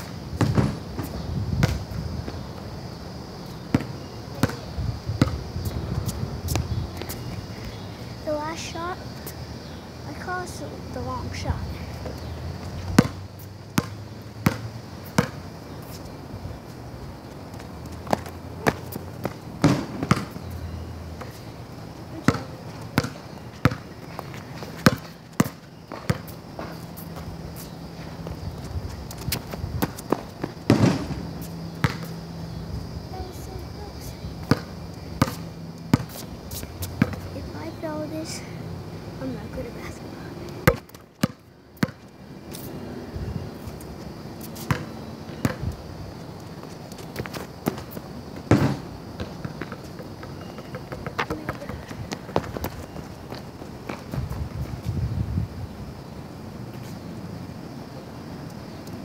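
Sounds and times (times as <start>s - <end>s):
basketball bouncing on concrete: 0.0s - 2.4s, 3.7s - 5.4s, 12.0s - 13.2s, 13.8s - 15.4s, 17.6s - 20.5s, 22.2s - 27.3s, 29.1s - 32.2s, 34.4s - 37.3s, 40.6s - 42.1s, 44.5s - 45.7s, 47.2s - 54.4s.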